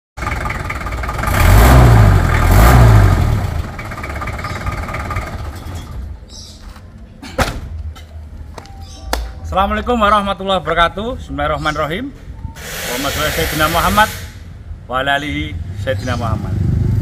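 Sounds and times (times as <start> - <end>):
car engine revving: 0.2 - 5.6.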